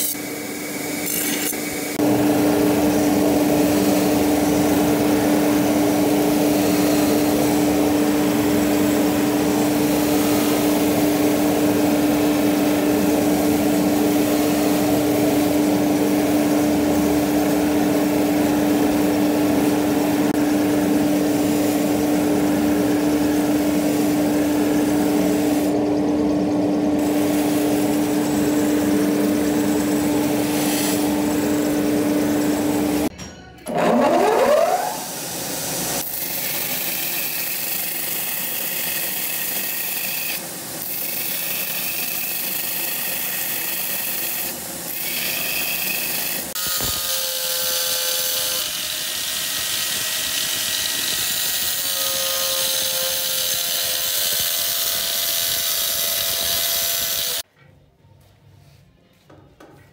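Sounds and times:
angle grinder cutting steel: 0.0 - 2.1, 33.7 - 35.2, 35.9 - 57.4
belt grinder motor whine: 0.0 - 5.5, 41.1 - 57.4
grinding wheel humming: 0.0 - 35.0.

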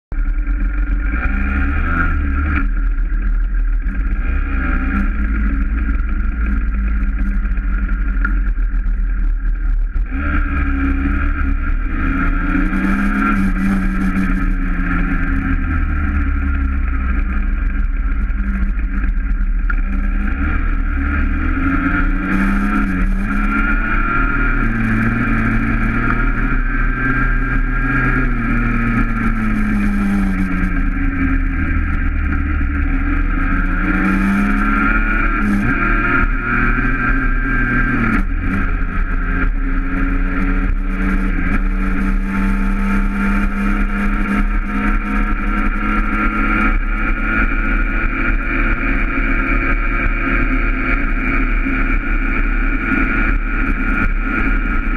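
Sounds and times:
dirt bike engine revving: 0.6 - 2.8, 3.8 - 8.5, 10.0 - 54.9.

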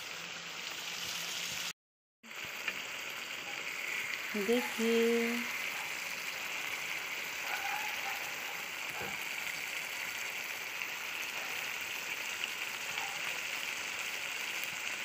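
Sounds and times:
curry sizzling and bubbling: 0.0 - 15.0.

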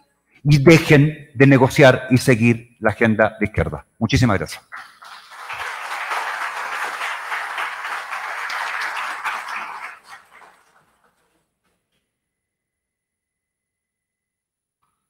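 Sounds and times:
audience applauding: 4.7 - 11.3.

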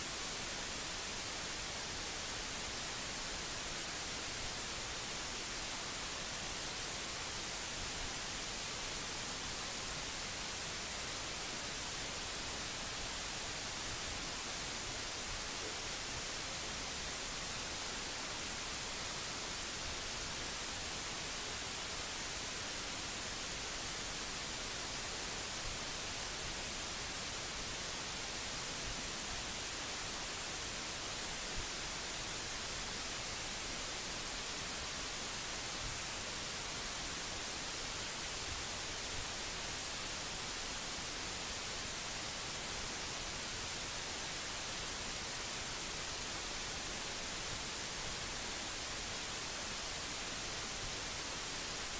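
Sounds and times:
steady hiss: 0.0 - 51.9.

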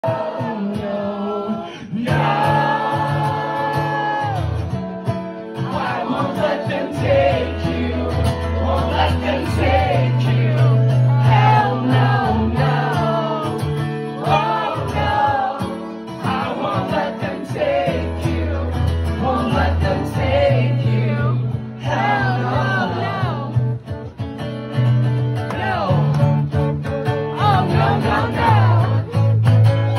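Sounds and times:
man singing: 0.0 - 4.6, 5.6 - 23.6
acoustic guitar strumming: 0.0 - 29.9.

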